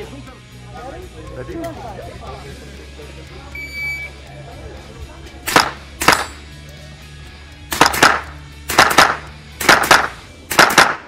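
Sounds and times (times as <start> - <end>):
rifle shots: 5.5 - 6.4, 7.7 - 11.0.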